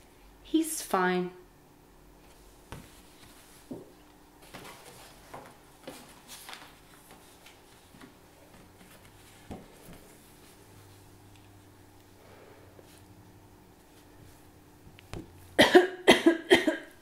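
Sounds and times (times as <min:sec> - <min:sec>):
paper cards rustling and knocking: 0:02.7 - 0:10.2.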